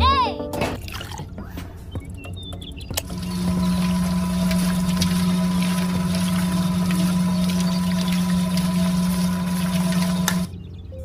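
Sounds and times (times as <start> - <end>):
small electric motor humming: 3.0 - 10.5.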